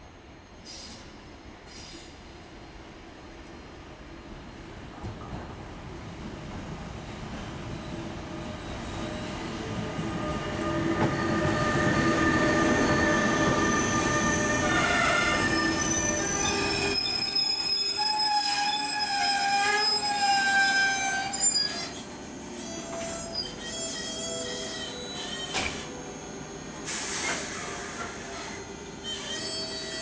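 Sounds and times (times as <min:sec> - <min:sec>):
high-pitched wheel and brake squeal: 0:10.2 - 0:30.0
sharp clunk of train stopping: 0:24.8 - 0:26.0, 0:26.8 - 0:28.6.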